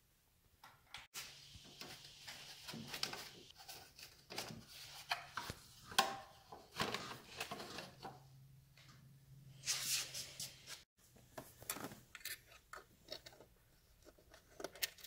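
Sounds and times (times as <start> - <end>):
small metal parts clicking and clattering: 14.4 - 15.0.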